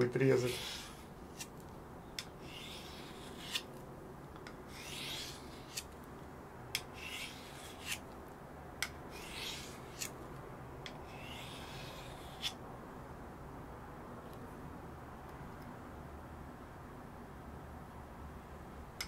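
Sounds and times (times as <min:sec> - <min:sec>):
knife blade scraping: 0:00.0 - 0:01.5, 0:02.2 - 0:03.8, 0:04.7 - 0:06.0, 0:06.8 - 0:08.0, 0:08.8 - 0:10.2, 0:10.9 - 0:12.6.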